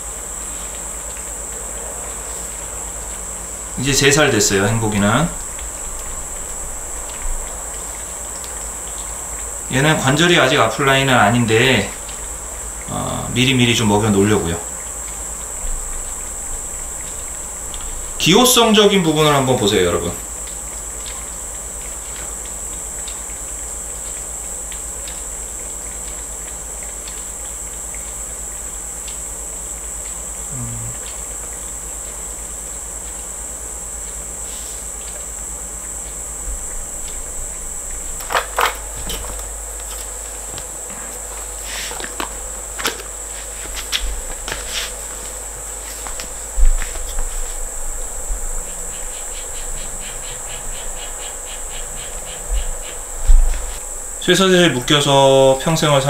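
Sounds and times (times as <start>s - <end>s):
crickets trilling: 0.0s - 56.0s
pulsing low hum: 1.4s - 9.8s, 14.6s - 18.3s, 19.6s - 56.0s
high-pitched buzz: 27.1s - 56.0s.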